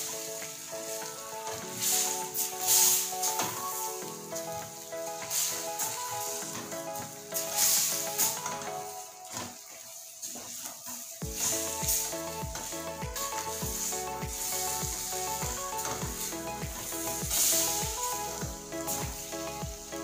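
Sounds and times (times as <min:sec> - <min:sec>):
chicken sizzling in a pan: 0:09.2 - 0:12.7, 0:16.8 - 0:17.5
background music with bass beat: 0:11.2 - 0:20.0.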